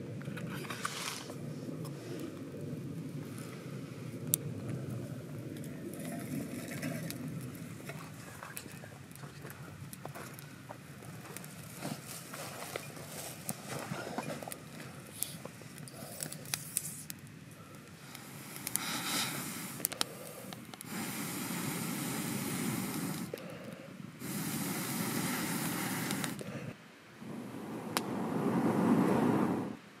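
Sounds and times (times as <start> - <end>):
wood fire crackling: 0.0 - 30.0
air blown through pipe: 24.2 - 30.0.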